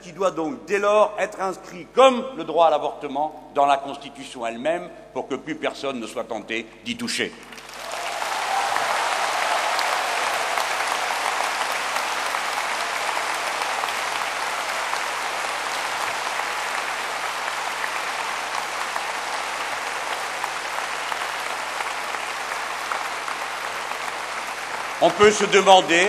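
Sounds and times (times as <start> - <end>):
audience applauding: 7.5 - 26.0.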